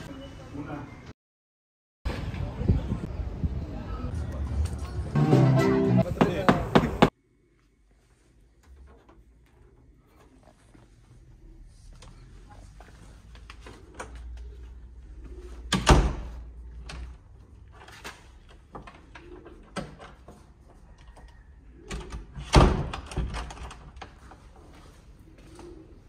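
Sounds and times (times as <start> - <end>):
wooden door banging shut: 15.7 - 16.3, 22.0 - 23.7.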